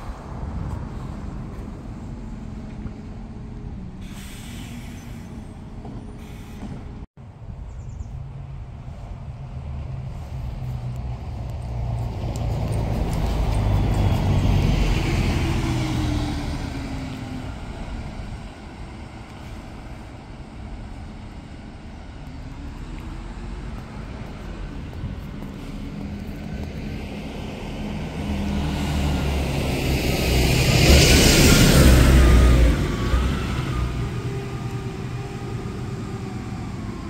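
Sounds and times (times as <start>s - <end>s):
diesel vehicles passing: 0.0s - 37.0s
heavy vehicle approaching: 8.5s - 37.0s.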